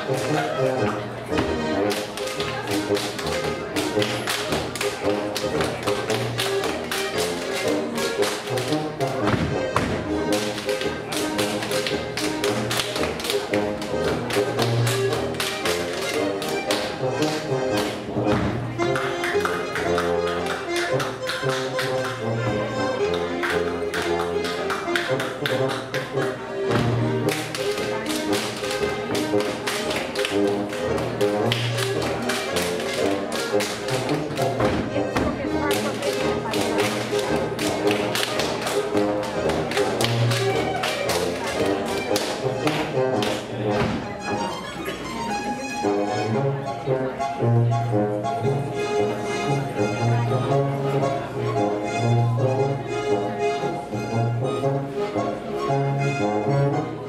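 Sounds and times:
dancers slapping thighs and shoes: 0.0 - 22.3, 23.1 - 44.1
folk dance music: 0.0 - 57.0
dancers slapping and stomping: 8.2 - 10.9.

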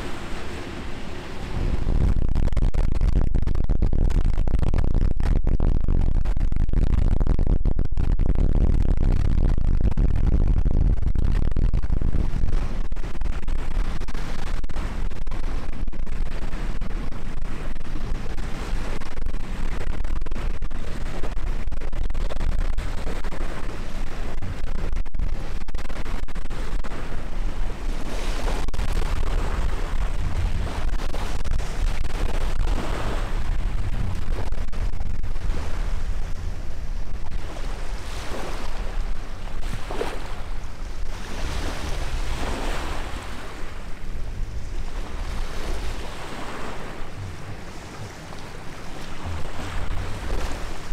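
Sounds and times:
small waves washing ashore: 0.0 - 2.1, 26.5 - 50.9
wind buffeting microphone: 0.0 - 50.9.

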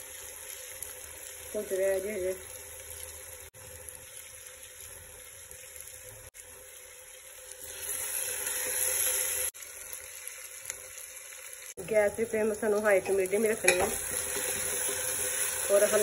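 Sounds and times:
onions sizzling in oil: 0.0 - 16.0
spoon stirring in pot: 13.0 - 15.4.

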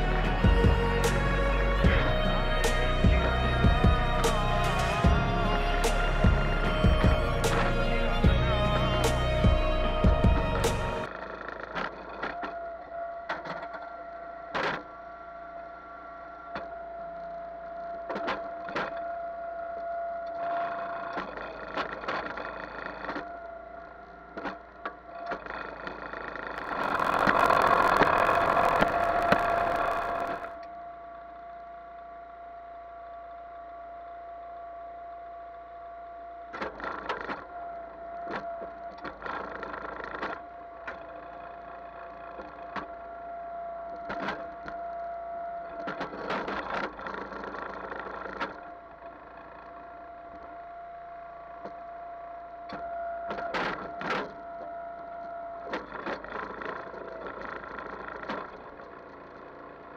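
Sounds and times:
log splitter whining: 0.0 - 19.0, 19.6 - 59.9
wood cracking and splintering: 25.3 - 30.6.

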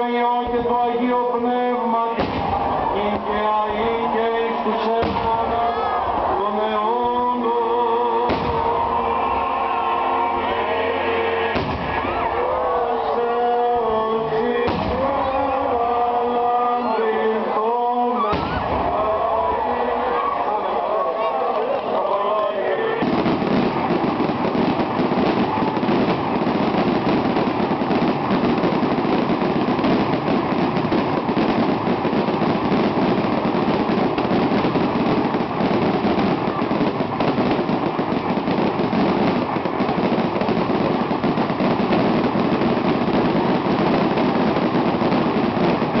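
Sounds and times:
fireworks bangs and crackling: 0.0 - 46.0.

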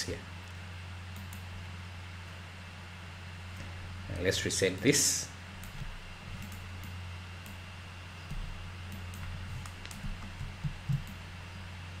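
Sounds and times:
steady low hum: 0.0 - 12.0
computer mouse clicks: 1.2 - 1.5, 5.6 - 7.6, 8.3 - 11.2.

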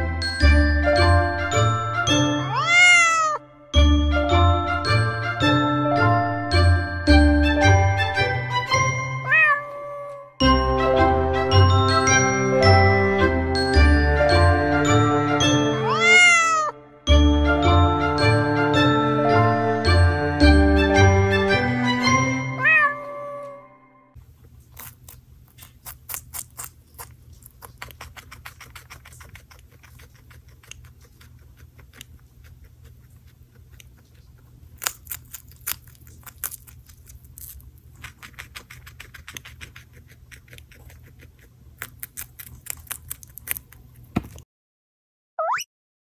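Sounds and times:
guinea pig crunching pepper: 24.2 - 44.4.

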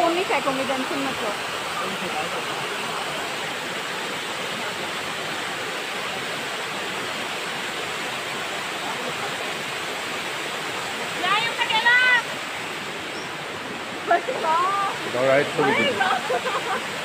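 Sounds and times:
waterfall rushing: 0.0 - 17.0.

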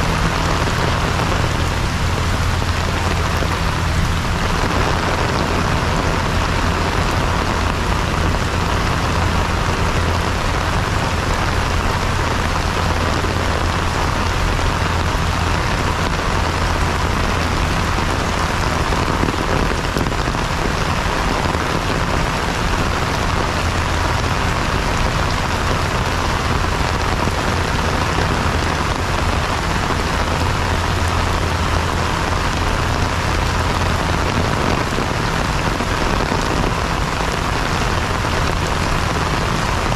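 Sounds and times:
heavy rain on paving: 0.0 - 39.9.

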